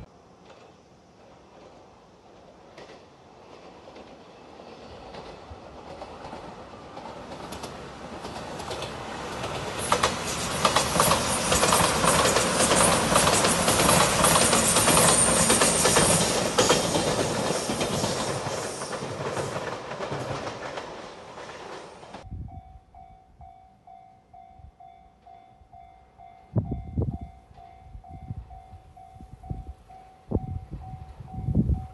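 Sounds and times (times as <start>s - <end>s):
train wheels clicking over rail joints: 0.3s - 22.2s
level crossing warning bell: 22.3s - 31.9s.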